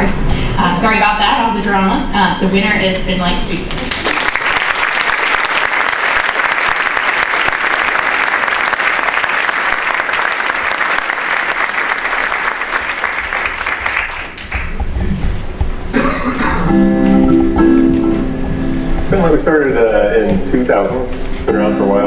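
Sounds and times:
audience applauding: 3.8 - 15.0.

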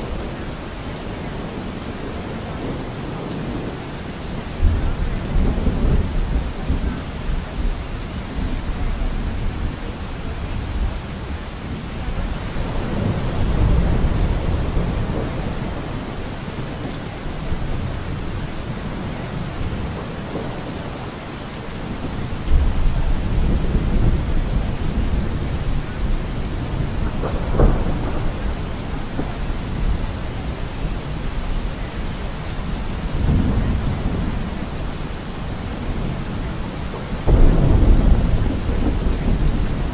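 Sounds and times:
steady rain falling: 0.0 - 39.9
thunder rumbling: 4.5 - 39.9
sharp thunder crack: 26.7 - 30.0, 37.2 - 39.9.

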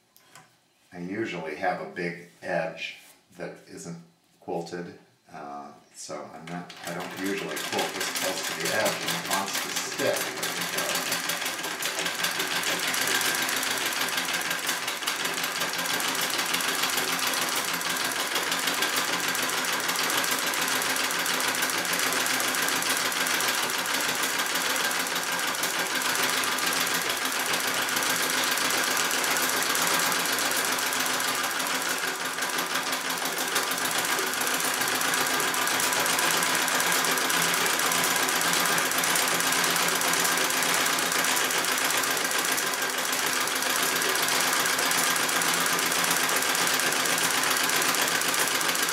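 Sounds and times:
treadle sewing machine stitching: 6.5 - 48.9.

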